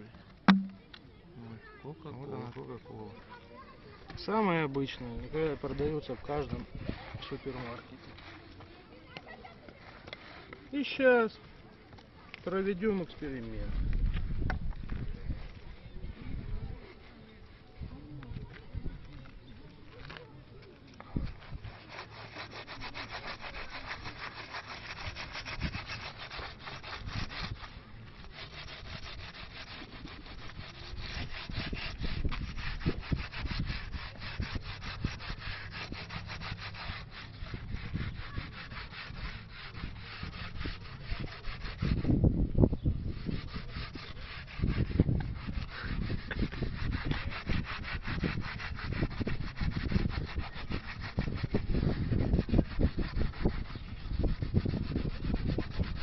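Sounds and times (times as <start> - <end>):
scrubbing rusty metal bar: 21.2 - 42.1, 43.0 - 56.0.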